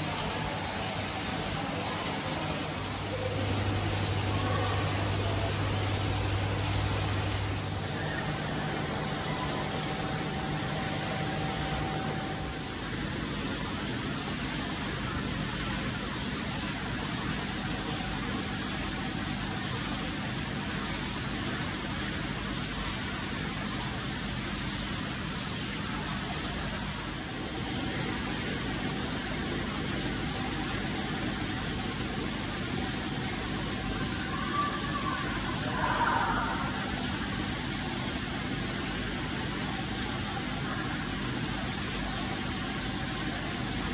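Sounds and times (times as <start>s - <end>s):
steady hissing background noise: 0.0s - 43.9s.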